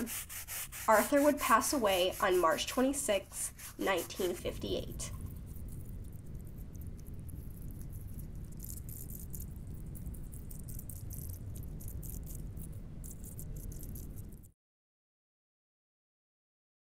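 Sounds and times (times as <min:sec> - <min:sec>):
sprayer hissing spurts: 0:00.0 - 0:05.1
steady low rumble: 0:00.0 - 0:14.5.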